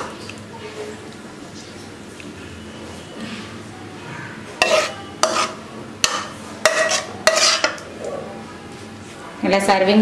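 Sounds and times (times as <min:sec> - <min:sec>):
wet scrape and slop of gravy: 0:06.8 - 0:07.7.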